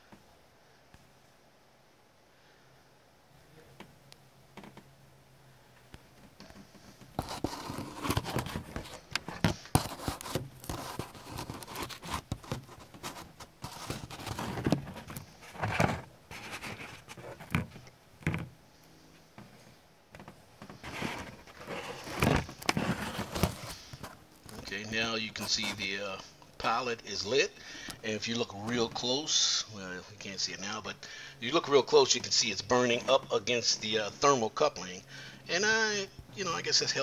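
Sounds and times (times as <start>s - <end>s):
camera handling rustle: 7.2s - 18.5s, 20.6s - 24.7s.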